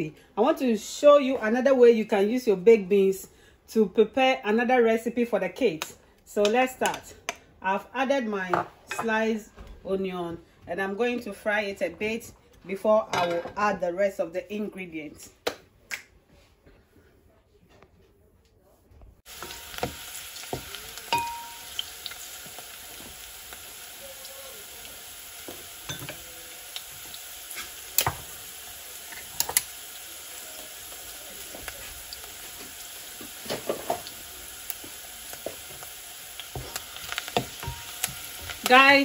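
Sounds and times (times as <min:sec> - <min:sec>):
onion sizzling in oil: 0:19.2 - 0:39.0
wooden spatula stirring: 0:34.8 - 0:38.9.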